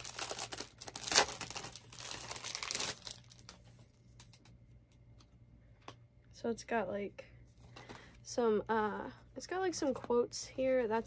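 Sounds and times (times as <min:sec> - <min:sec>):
plastic packaging crinkling: 0:00.0 - 0:04.5.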